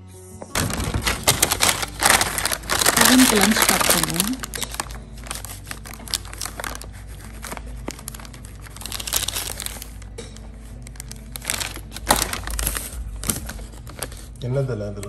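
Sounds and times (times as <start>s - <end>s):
food packaging crinkling: 0.6s - 14.4s.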